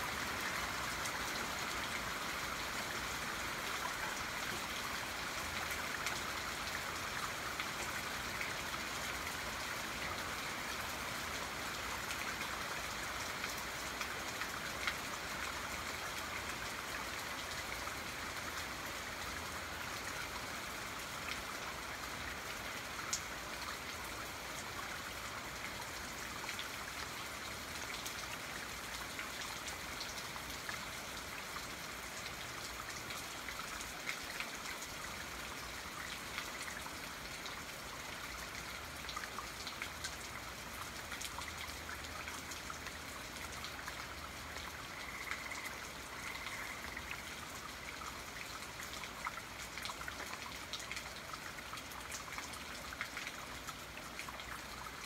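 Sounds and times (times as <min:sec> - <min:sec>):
steady rain: 0:00.0 - 0:55.0
raindrops ticking: 0:44.8 - 0:47.1.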